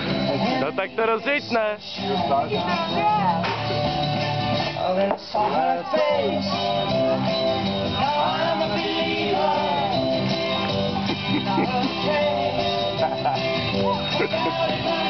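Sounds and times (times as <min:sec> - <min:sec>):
guitar: 0:00.0 - 0:15.0
person singing: 0:04.8 - 0:07.3, 0:08.0 - 0:10.5, 0:11.1 - 0:15.0.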